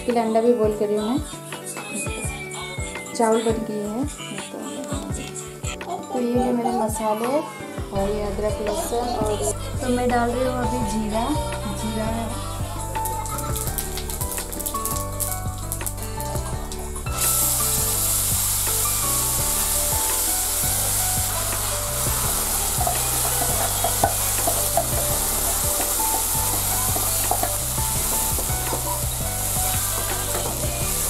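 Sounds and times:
seeds sizzling in hot oil: 13.1s - 31.0s.

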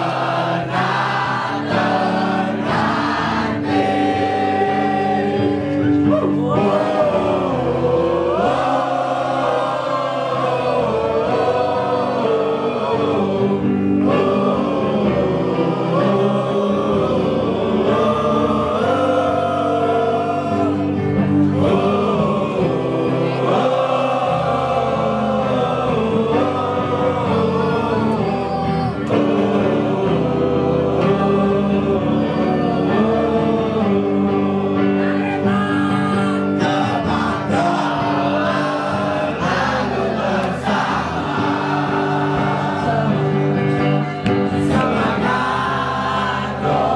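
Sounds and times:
held backing chords: 0.0s - 46.9s
men singing together: 0.0s - 46.9s
man singing into microphone: 1.2s - 43.8s.

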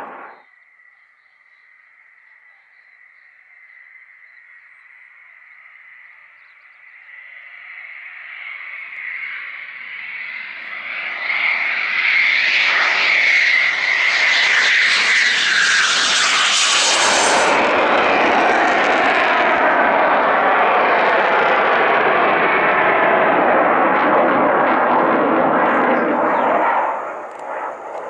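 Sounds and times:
jet engine whine passing: 0.0s - 0.4s, 8.1s - 28.0s.

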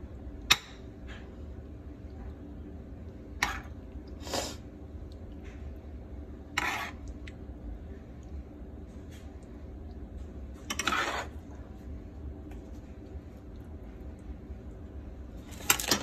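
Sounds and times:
spoon scraping: 6.5s - 7.1s, 10.6s - 11.4s.

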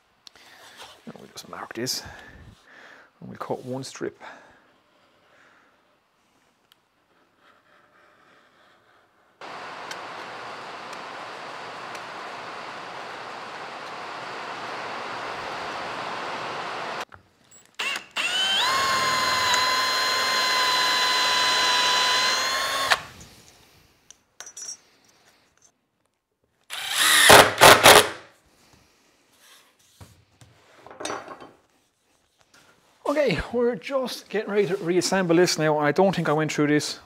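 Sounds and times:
cordless drill boring through metal: 9.4s - 17.0s, 17.6s - 23.2s, 26.7s - 28.2s
power tool burst: 17.8s - 23.2s, 26.7s - 28.2s.

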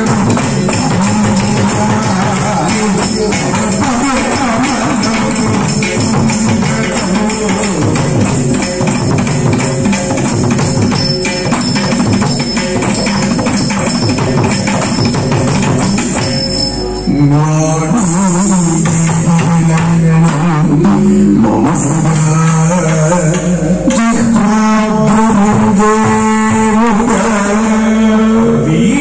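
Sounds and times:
drum beat: 0.0s - 16.7s, 18.1s - 21.0s
small jingling cymbals: 0.0s - 18.1s
person singing: 0.0s - 29.0s.

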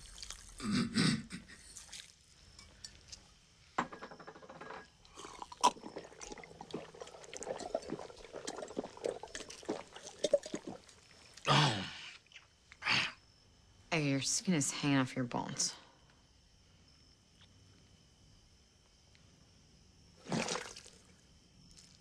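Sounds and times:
liquid sloshing: 5.1s - 11.5s, 20.2s - 21.0s
man swallowing and slurping: 5.1s - 12.4s.

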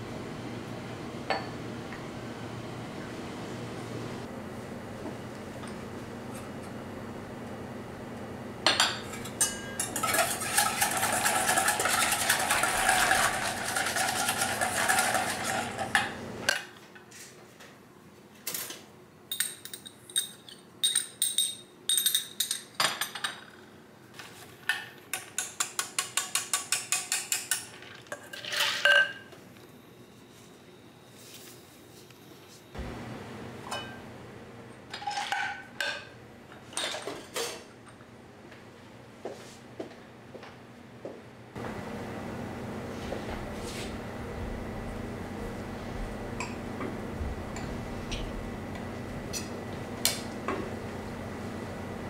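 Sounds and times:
metal utensils clattering on dishes: 8.7s - 16.7s, 34.9s - 37.7s.

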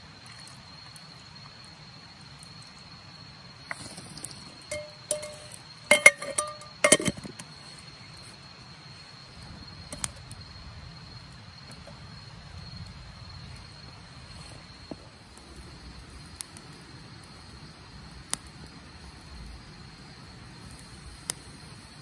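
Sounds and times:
crickets trilling: 0.0s - 22.0s
wood fire crackling: 0.0s - 22.0s.

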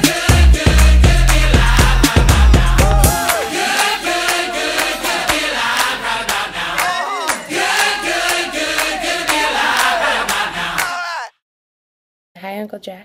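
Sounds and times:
heavy bass beat: 0.0s - 5.5s
voices singing: 0.0s - 11.4s.

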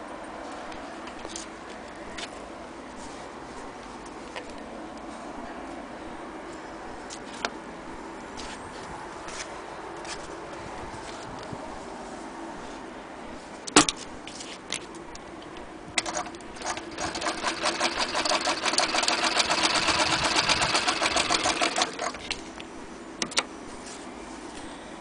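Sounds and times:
sewing machine clatter: 16.0s - 22.2s.

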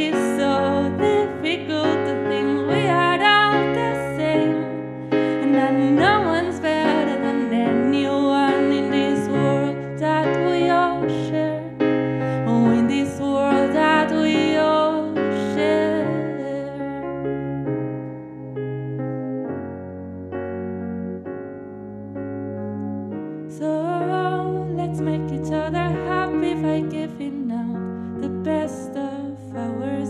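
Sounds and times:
woman singing a ballad: 0.0s - 17.3s, 23.5s - 30.0s
electric piano chords: 0.0s - 30.0s.

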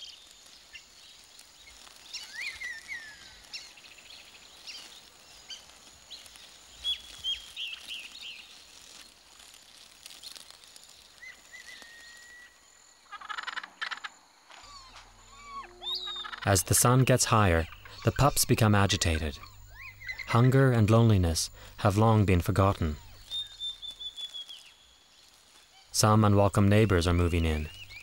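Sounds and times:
faint hiss: 0.0s - 13.1s, 15.9s - 28.0s
birds chirping and whistling: 1.8s - 5.7s, 14.6s - 20.8s, 22.6s - 25.0s, 26.8s - 28.0s
rapid chattering bird call: 13.1s - 24.4s.

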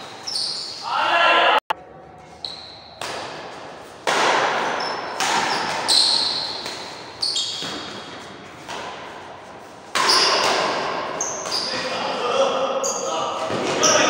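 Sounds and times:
rackets striking shuttlecock: 2.9s - 9.1s, 9.9s - 11.6s.

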